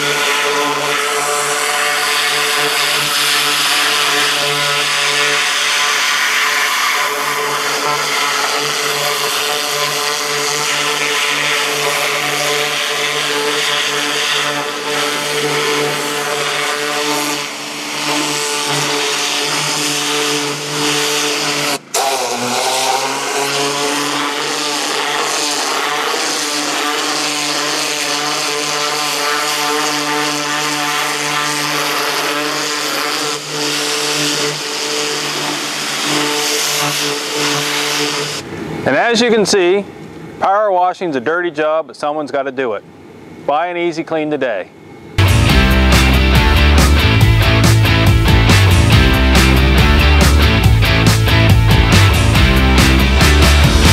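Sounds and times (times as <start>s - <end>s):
high-pressure water jet hissing: 0.0s - 39.3s
pressure washer engine running: 0.0s - 39.8s, 45.2s - 53.9s.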